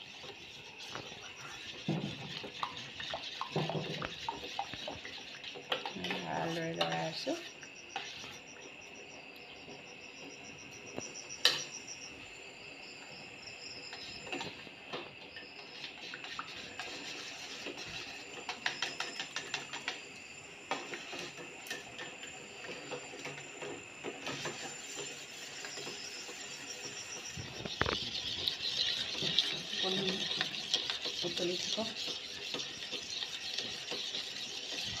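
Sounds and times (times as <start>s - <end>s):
utensil stirring and scraping pot: 0.0s - 8.4s, 15.6s - 20.1s, 20.7s - 35.0s.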